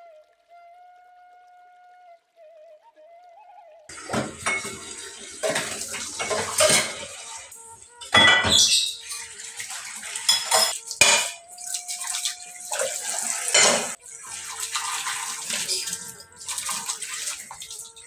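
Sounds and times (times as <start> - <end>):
plates clattering in metal sink: 3.9 - 11.4, 12.7 - 14.0.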